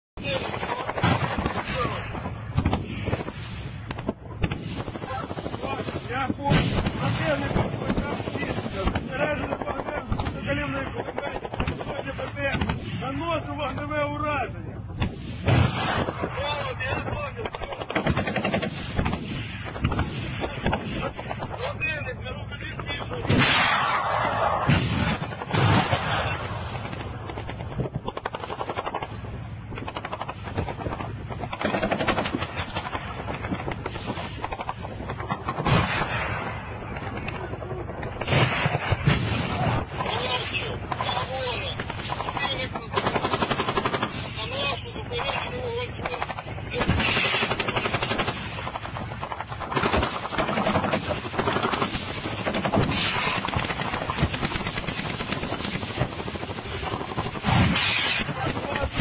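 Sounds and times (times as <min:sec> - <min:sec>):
rapid automatic gunfire: 0:00.2 - 0:03.3, 0:15.4 - 0:21.8, 0:23.3 - 0:59.0
rapid weapons fire bursts: 0:00.2 - 0:13.3, 0:15.0 - 0:21.7, 0:23.2 - 0:59.0.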